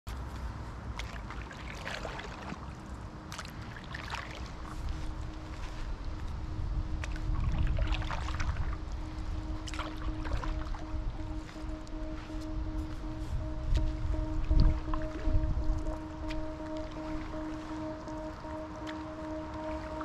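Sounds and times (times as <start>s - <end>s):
paddle splashing in water: 0.9s - 5.8s, 7.0s - 8.8s, 9.6s - 12.3s, 16.3s - 20.0s
faint ambient music tone: 1.4s - 20.0s
low rumble: 4.4s - 20.0s.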